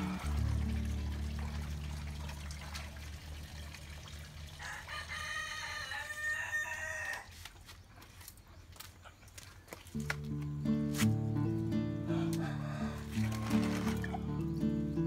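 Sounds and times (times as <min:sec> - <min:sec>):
rooster crowing: 0:04.6 - 0:07.3, 0:12.0 - 0:14.1
faint background music: 0:09.8 - 0:15.0.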